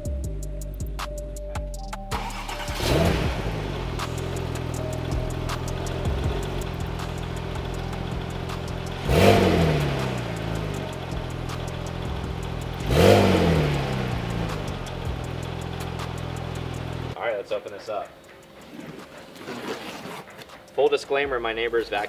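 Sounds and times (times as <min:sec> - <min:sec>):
sports car engine idling: 0:00.4 - 0:17.2
engine revving: 0:02.1 - 0:17.2.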